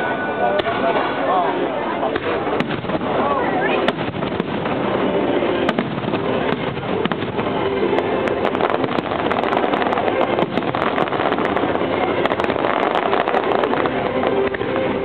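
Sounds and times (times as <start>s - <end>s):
fireworks bursting and crackling: 0.6s - 15.0s.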